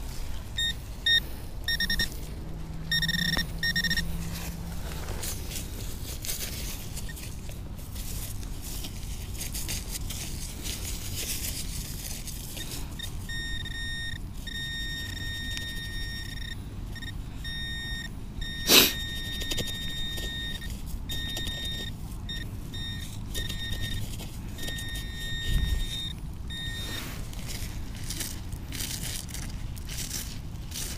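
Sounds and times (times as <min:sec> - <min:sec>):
metal detector beeps: 0:00.6 - 0:04.8, 0:12.6 - 0:28.3.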